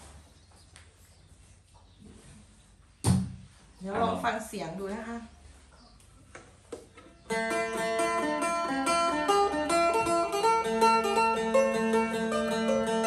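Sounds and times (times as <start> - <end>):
plucked lute notes: 7.3 - 13.0.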